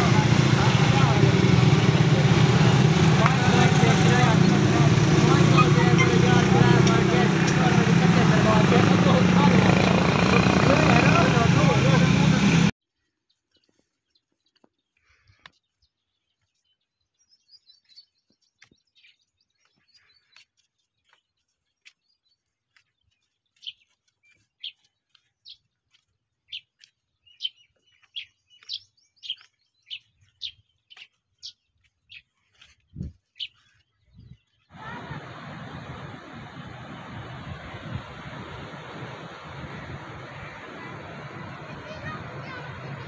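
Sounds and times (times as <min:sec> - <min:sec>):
small bird chirping: 0:13.0 - 0:34.7.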